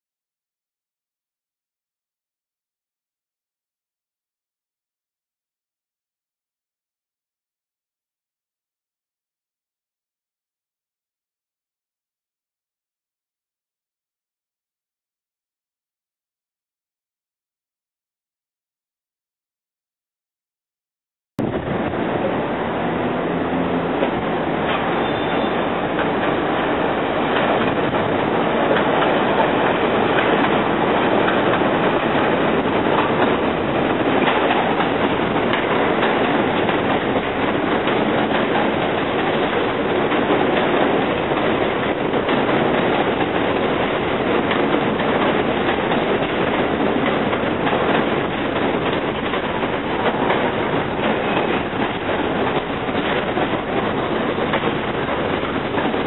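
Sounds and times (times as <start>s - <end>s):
train wheels rumbling on rail: 21.4s - 56.0s
wheels clacking over rail joints: 21.5s - 56.0s
wheel squeal: 24.7s - 25.9s.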